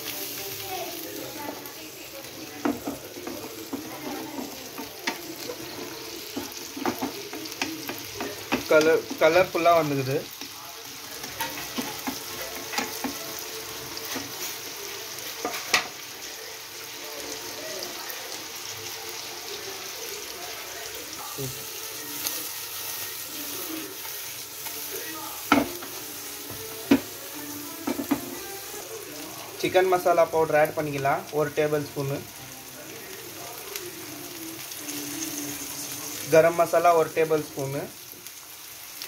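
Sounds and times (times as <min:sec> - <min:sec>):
vegetables sizzling in oil: 0:00.0 - 0:39.0
wooden spatula stirring: 0:02.6 - 0:09.6.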